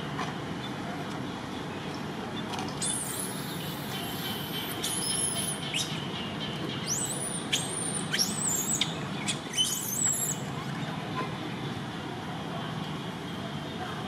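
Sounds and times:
monkeys squealing: 6.9 - 10.4.

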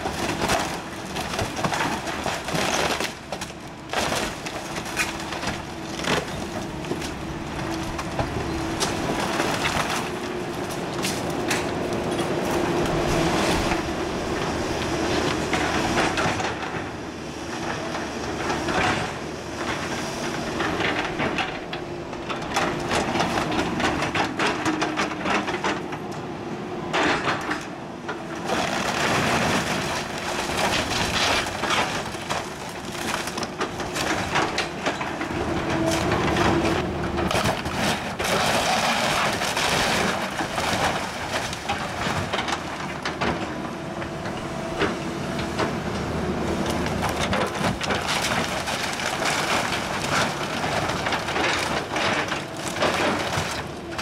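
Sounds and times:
timber cracking and splintering: 0.0 - 12.1, 28.4 - 43.5, 46.7 - 54.0
debris falling: 0.0 - 12.6, 46.8 - 54.0
excavator engine hum: 0.0 - 54.0.

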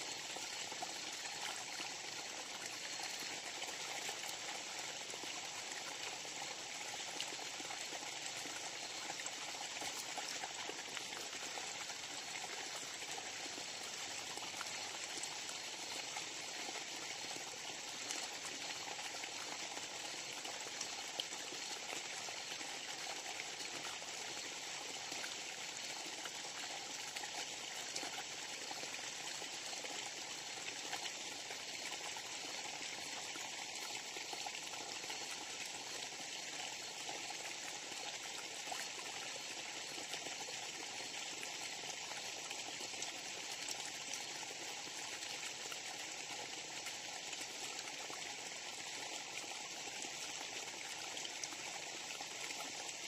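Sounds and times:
stream rushing water: 0.0 - 4.4.

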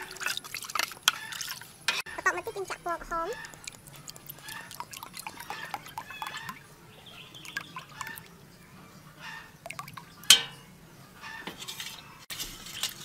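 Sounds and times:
liquid pouring into bowl: 0.0 - 1.8, 3.3 - 8.3, 9.6 - 10.1.

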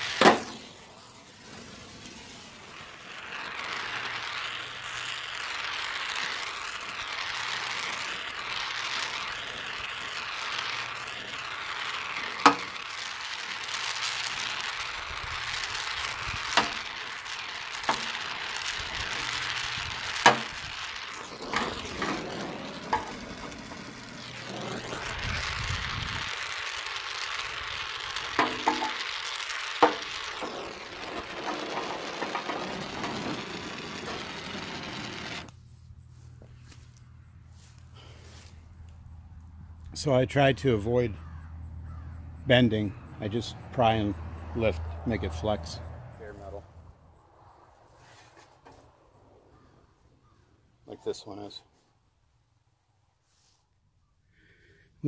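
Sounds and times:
gas torch flame hissing: 0.0 - 35.6.

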